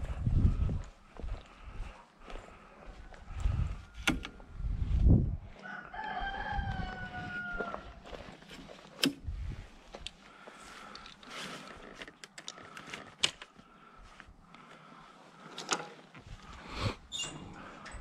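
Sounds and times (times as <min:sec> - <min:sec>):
rooster crowing: 0:05.6 - 0:08.2.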